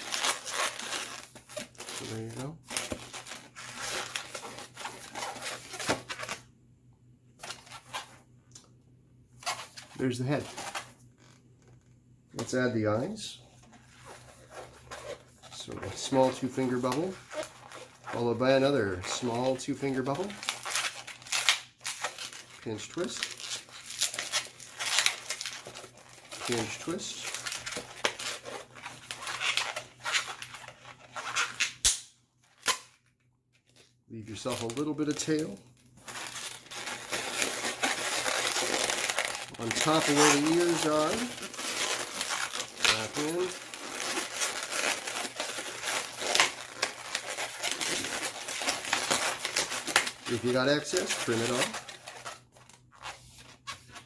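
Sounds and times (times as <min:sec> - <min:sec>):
sharp balloon snap: 0:31.8 - 0:32.1.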